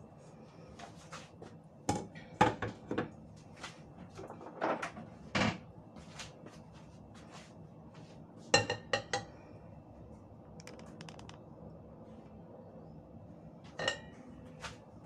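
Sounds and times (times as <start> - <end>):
metal kitchenware clinking: 13.8 - 14.2.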